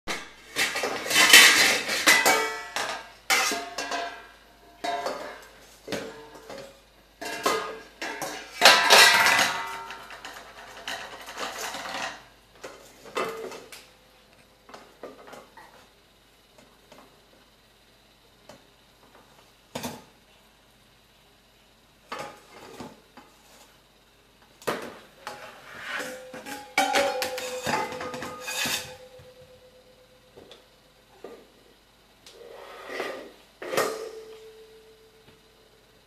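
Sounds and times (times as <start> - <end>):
metal bowls and pot clattering: 0.5 - 12.2, 24.8 - 29.9.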